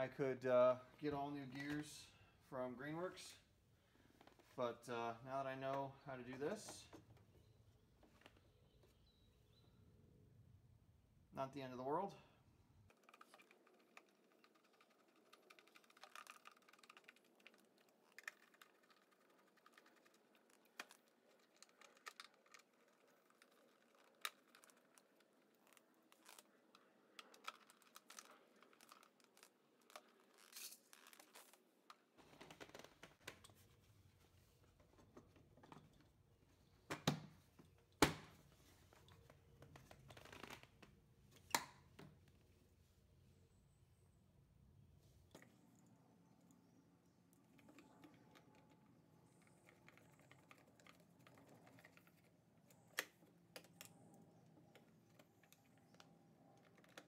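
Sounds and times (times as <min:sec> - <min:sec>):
plastic parts clicking and tapping: 0:12.9 - 0:33.6.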